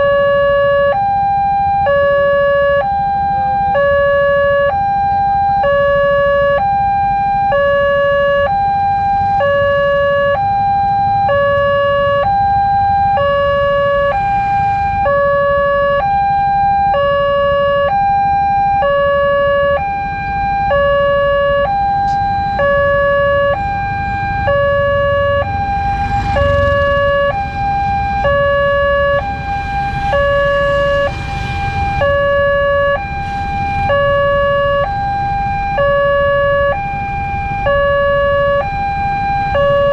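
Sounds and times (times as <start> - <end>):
level crossing alarm two-tone: 0.0 - 39.9
road traffic rumble: 0.0 - 39.9
motorcycles idling: 22.0 - 34.7.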